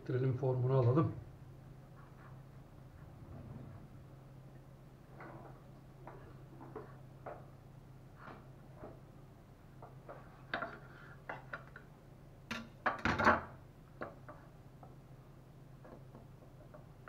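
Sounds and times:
low hum: 0.0s - 6.6s.

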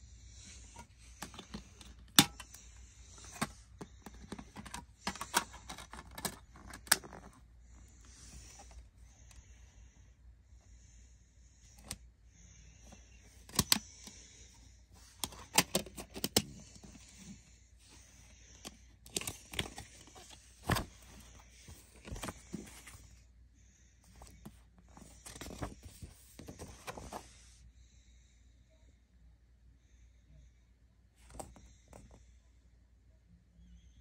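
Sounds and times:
paper rustling: 0.5s - 7.4s, 19.0s - 23.2s, 24.2s - 27.4s
plastic case clicks and knocks: 1.2s - 2.5s.

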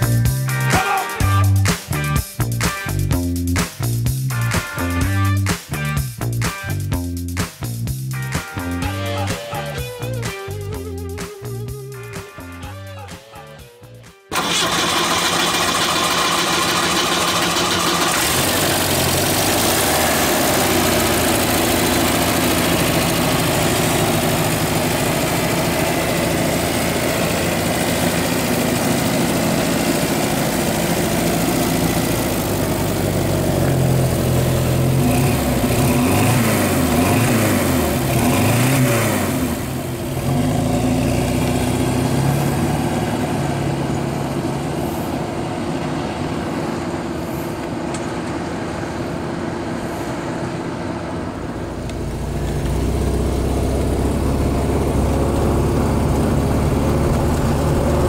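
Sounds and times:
car engine revving: 14.3s - 47.8s, 51.2s - 58.0s
car engine idling: 14.3s - 58.0s.

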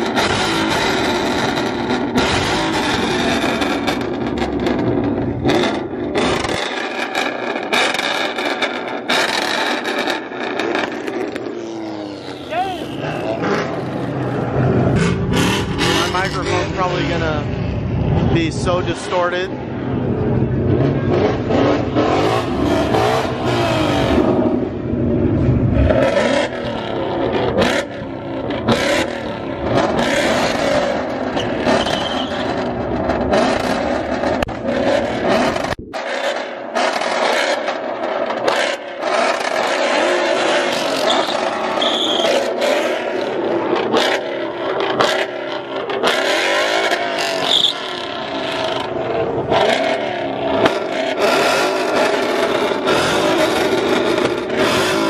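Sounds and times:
deep engine rumble: 0.0s - 7.5s, 10.2s - 36.0s
car engines revving: 0.0s - 55.0s.

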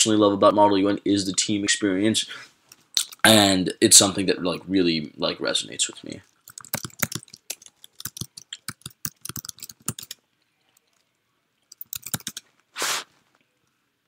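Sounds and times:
keyboard key clicks: 6.5s - 10.2s, 11.8s - 12.4s.

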